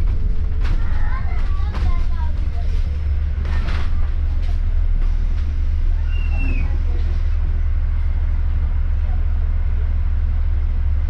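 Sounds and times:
bus engine drone: 0.0 - 11.0
road noise: 0.0 - 11.0.

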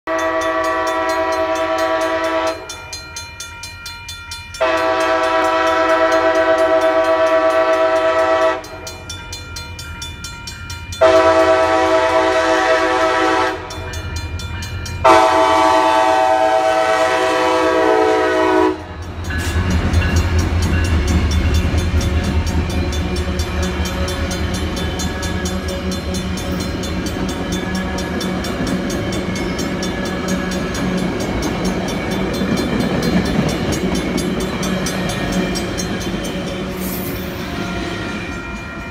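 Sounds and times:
train horn blasts: 0.0 - 2.8, 4.6 - 9.0, 11.0 - 13.9, 15.0 - 20.2
train rumbling past: 0.1 - 38.9.

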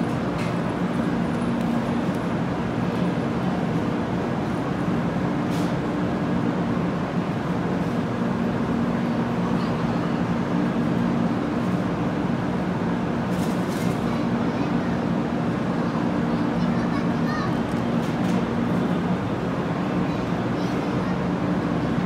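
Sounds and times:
train electric hum: 0.0 - 22.0
murmur of crowd: 13.9 - 22.0.

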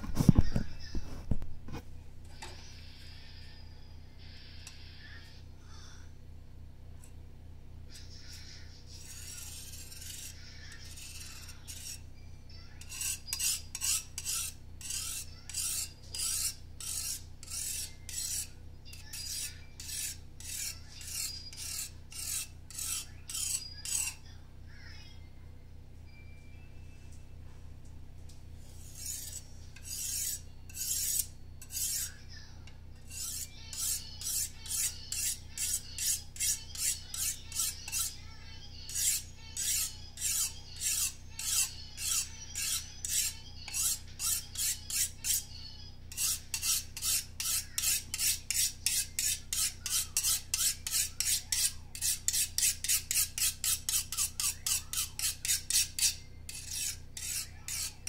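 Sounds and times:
knife scraping on sharpening rod: 8.0 - 12.0, 12.8 - 24.2, 28.7 - 32.2, 33.0 - 38.2, 38.9 - 45.5, 46.1 - 58.0.

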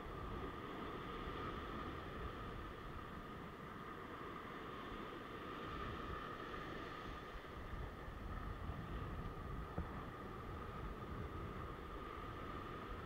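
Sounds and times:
wind noise: 5.6 - 13.0.

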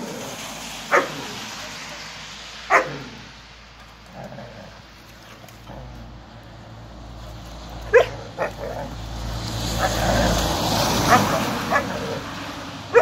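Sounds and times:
dog barking: 0.9 - 1.3, 2.7 - 3.1, 7.9 - 8.9, 11.0 - 12.1
dog yelping: 2.7 - 3.0, 7.9 - 8.9, 11.0 - 12.2.

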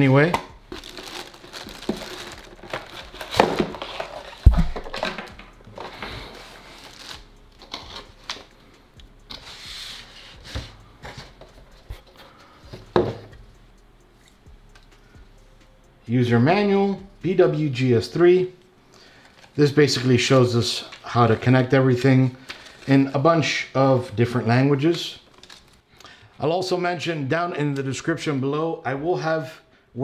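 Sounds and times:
packaging rustling and crinkling: 0.0 - 8.5, 19.1 - 23.1, 24.0 - 25.8.

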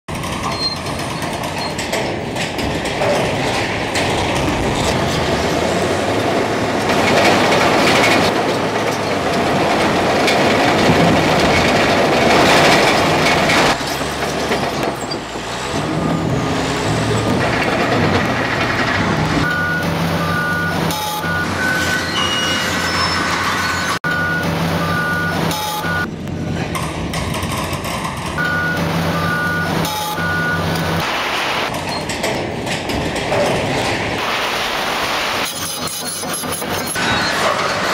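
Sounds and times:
heavy demolition machinery rumbling: 0.1 - 37.9
back-up alarms beeping: 19.4 - 26.1, 28.4 - 31.1.

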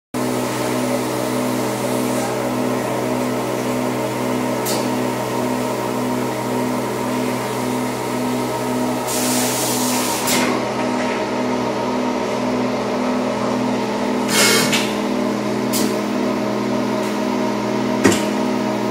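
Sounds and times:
machinery electric hum: 0.2 - 18.9
air hissing: 9.0 - 10.5, 14.2 - 14.9.

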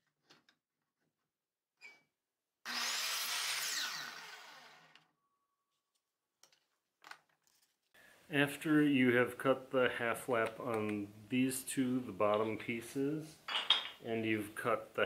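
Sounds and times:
miter saw cutting wood: 2.7 - 5.0.

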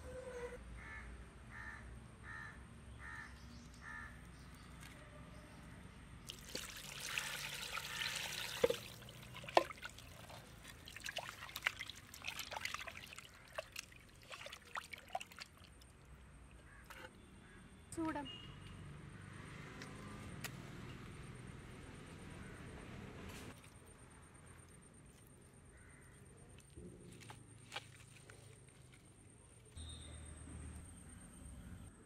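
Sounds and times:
water pouring into clay pot: 6.2 - 15.9
hands splashing in water: 6.3 - 15.8.

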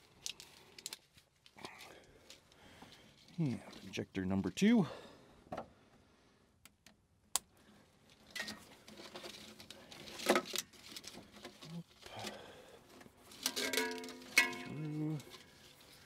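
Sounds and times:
plastic loom rustling: 8.1 - 16.0.

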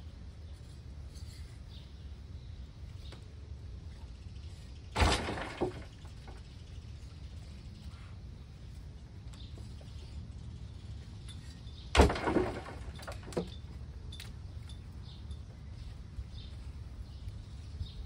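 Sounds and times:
earth thudding into grave: 4.9 - 6.4, 11.9 - 13.5.

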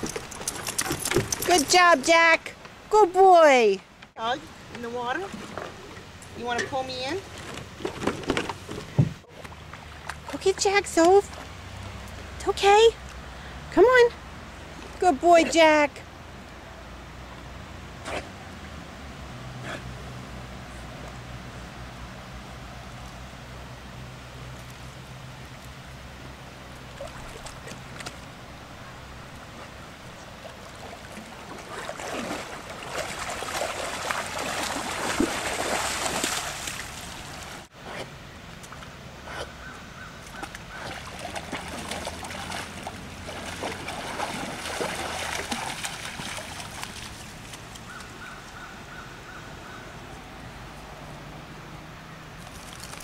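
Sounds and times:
water splashing and sloshing: 0.0 - 15.1, 24.0 - 39.6, 40.2 - 48.6, 52.3 - 53.0.

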